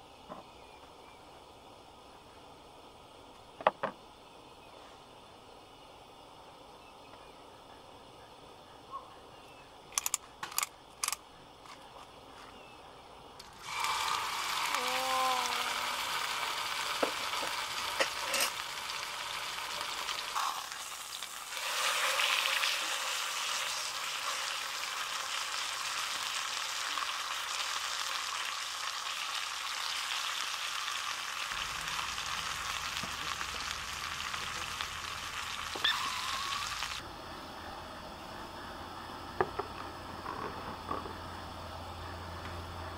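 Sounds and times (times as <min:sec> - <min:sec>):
sharp clicks: 0:09.9 - 0:11.2
steak sizzling in a pan: 0:13.5 - 0:37.0.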